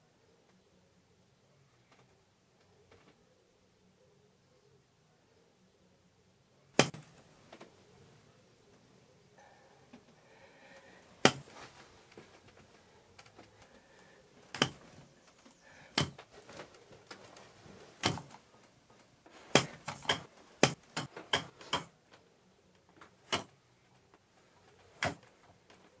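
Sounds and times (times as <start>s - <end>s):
sharp knocks and taps: 6.8s - 7.0s, 14.5s - 14.9s, 15.9s - 16.4s, 18.0s - 18.4s, 19.5s - 21.9s.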